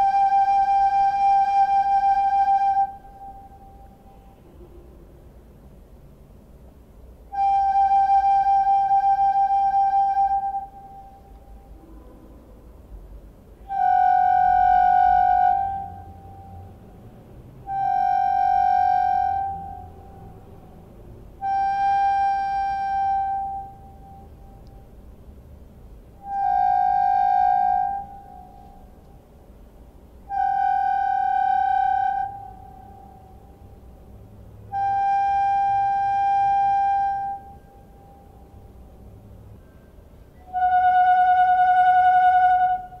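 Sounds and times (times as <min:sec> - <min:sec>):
ceramic whistle notes: 0:00.0 - 0:04.6, 0:07.3 - 0:12.3, 0:13.6 - 0:16.8, 0:17.6 - 0:20.6, 0:21.4 - 0:24.6, 0:26.2 - 0:29.0, 0:30.3 - 0:33.7, 0:34.7 - 0:38.6, 0:39.6 - 0:43.0.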